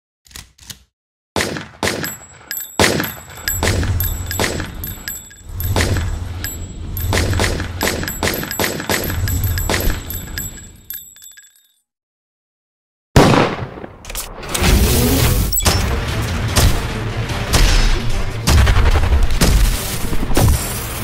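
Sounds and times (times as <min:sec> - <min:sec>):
gunshots with ringing tail: 0:01.4 - 0:10.7, 0:13.2 - 0:14.0.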